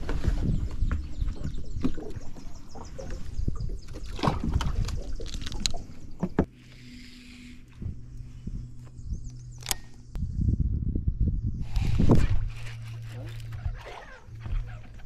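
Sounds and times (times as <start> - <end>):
low hum: 0.0 - 15.0.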